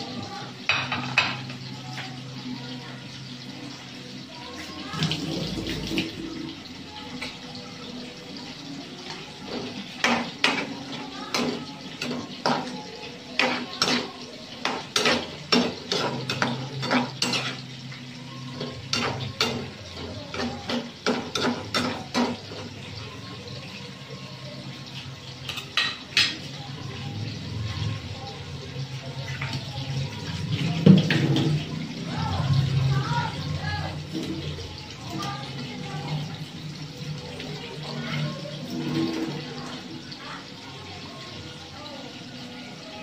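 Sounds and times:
metal spatula scraping a pan: 9.5 - 22.6.

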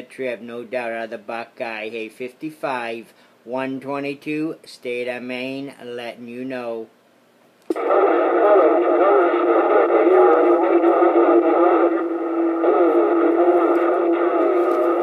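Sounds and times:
far-off radio voices: 7.7 - 15.0
radio static: 7.7 - 15.0
steady tone: 7.7 - 15.0.

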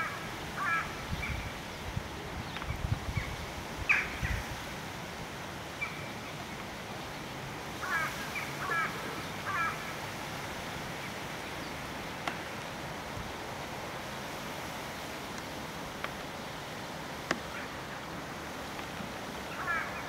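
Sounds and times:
crow calling: 0.0 - 1.4, 7.8 - 10.0, 19.5 - 20.0
background hiss: 0.0 - 20.0.

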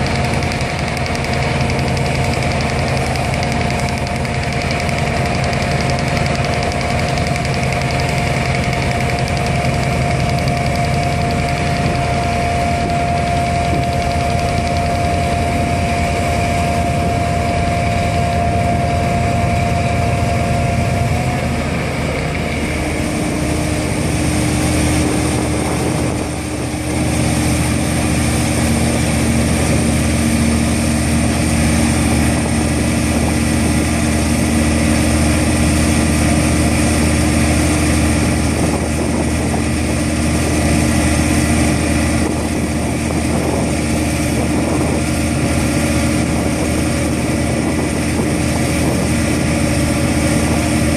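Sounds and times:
vibratory pile hammer humming: 0.0 - 50.9.

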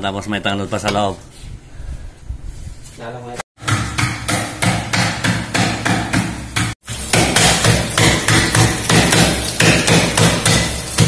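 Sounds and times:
pounding on chopping board: 3.6 - 11.0.

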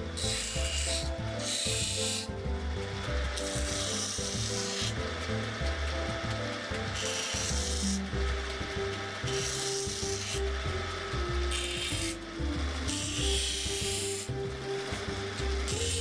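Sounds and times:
metal grinding on abrasive wheel: 0.0 - 16.0.

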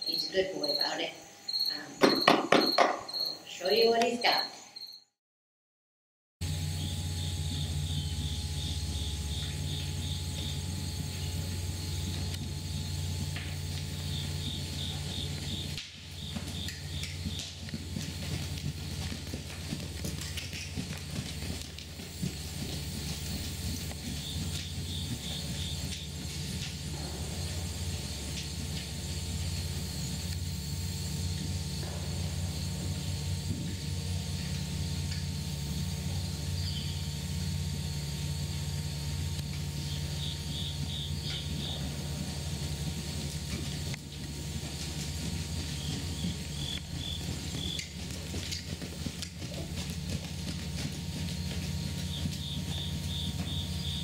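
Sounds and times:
faint chirp: 0.0 - 5.1
horse hoofbeats on sand: 6.5 - 54.0
steady low rumble: 6.5 - 54.0.

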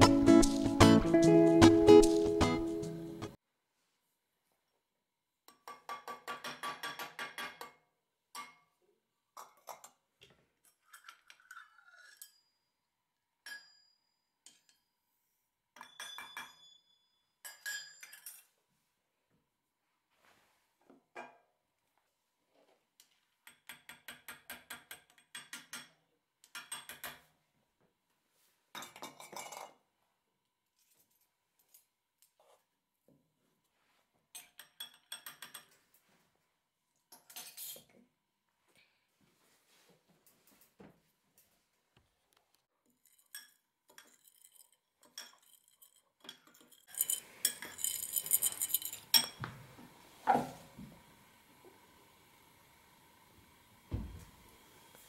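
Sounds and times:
metal spoon clinking on glass bowl: 15.8 - 18.5, 34.4 - 35.8, 43.0 - 49.5
dull knock: 53.9 - 54.3.

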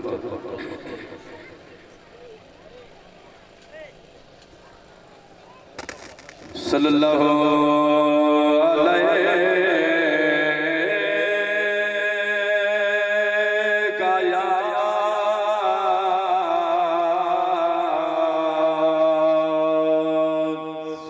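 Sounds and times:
man chanting through loudspeaker: 6.6 - 21.0.

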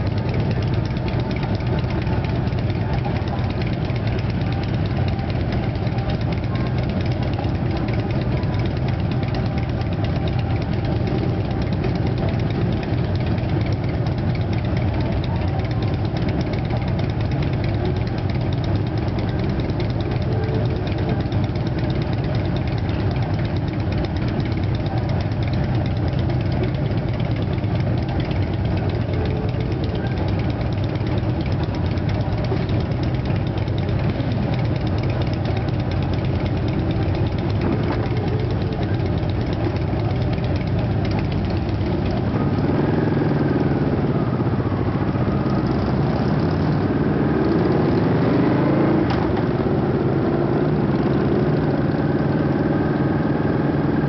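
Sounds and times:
motorcycle engines idling and revving: 0.0 - 54.0.

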